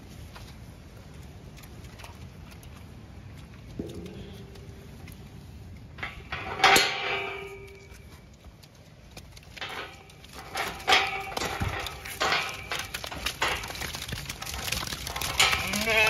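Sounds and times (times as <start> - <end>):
metal gate clanging and rattling: 5.9 - 8.3, 9.3 - 16.0.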